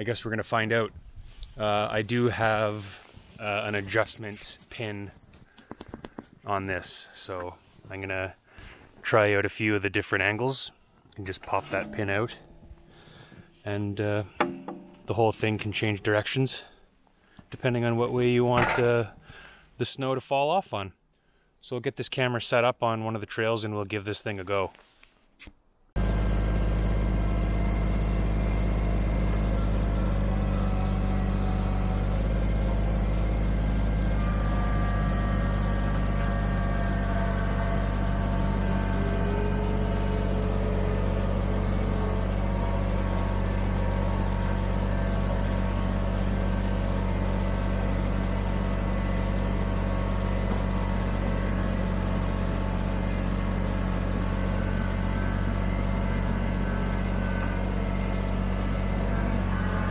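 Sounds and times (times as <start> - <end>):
tractor diesel engine running: 0.9 - 7.0, 11.2 - 16.2, 26.0 - 59.9.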